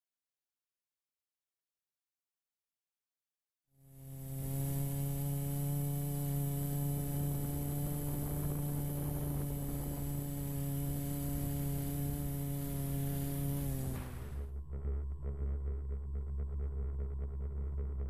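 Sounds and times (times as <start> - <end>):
quadcopter motors humming: 3.8 - 18.0.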